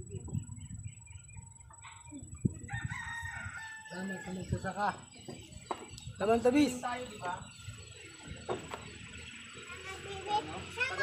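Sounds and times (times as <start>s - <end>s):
rooster crowing: 2.6s - 4.7s.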